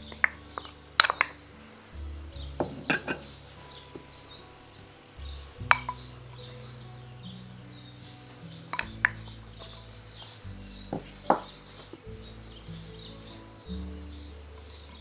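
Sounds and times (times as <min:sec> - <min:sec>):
glass bowls clinking: 0:00.0 - 0:01.4, 0:02.6 - 0:04.3, 0:05.4 - 0:06.7.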